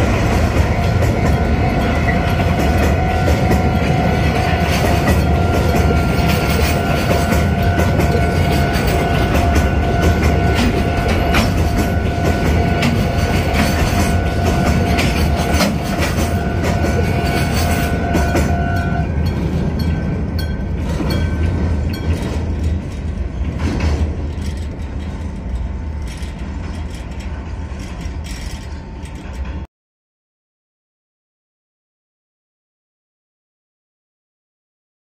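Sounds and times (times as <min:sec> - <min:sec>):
freight train rolling over bridge: 0:00.0 - 0:29.7
steady ringing tone: 0:00.6 - 0:23.5.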